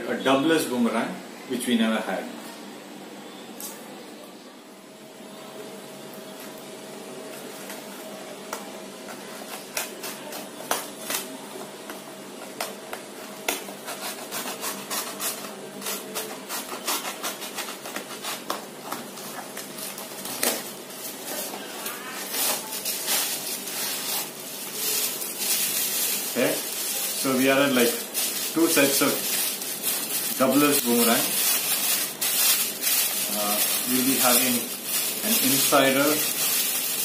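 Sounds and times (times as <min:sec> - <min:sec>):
plastic bags crinkling: 0:19.4 - 0:37.0.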